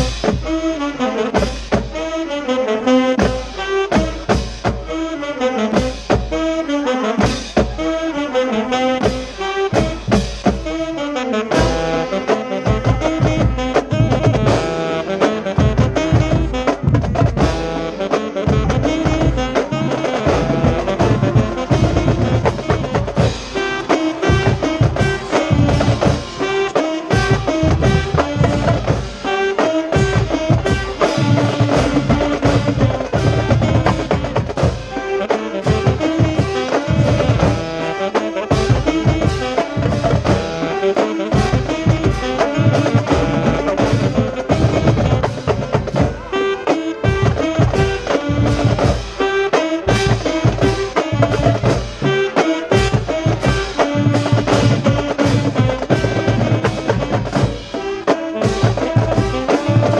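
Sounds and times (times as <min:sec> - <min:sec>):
brass melody: 0:00.0 - 0:59.9
drum line: 0:00.0 - 0:59.9
marching band playing: 0:00.0 - 0:59.9.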